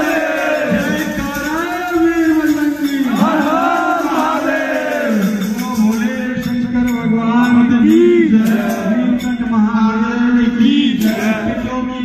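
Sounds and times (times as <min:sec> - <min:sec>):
man singing devotional chant: 0:00.0 - 0:12.0
music over loudspeaker: 0:00.0 - 0:12.0.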